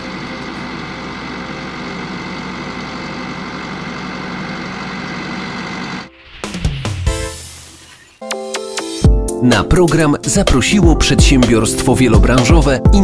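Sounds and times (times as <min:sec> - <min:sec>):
tractor engine running: 0:00.0 - 0:06.2.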